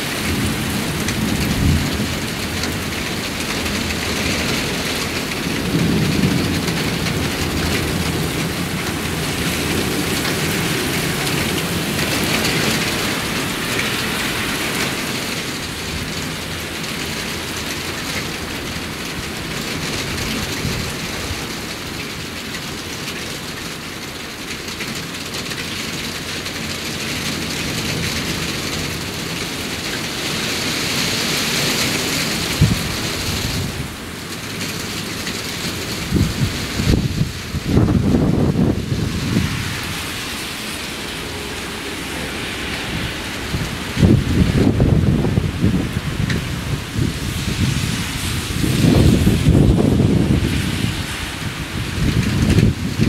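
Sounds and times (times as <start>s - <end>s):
low rumble of thunder: 0.0s - 13.4s, 32.3s - 34.0s, 35.8s - 40.0s, 42.8s - 53.0s
heavy rain falling: 0.0s - 53.0s.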